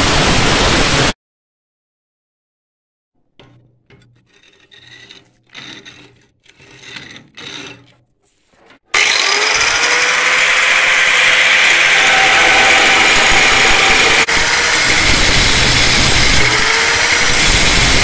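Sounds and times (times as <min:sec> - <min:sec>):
quiet scraping and rubbing: 0:03.4 - 0:08.9
angle grinder whine: 0:08.9 - 0:18.0.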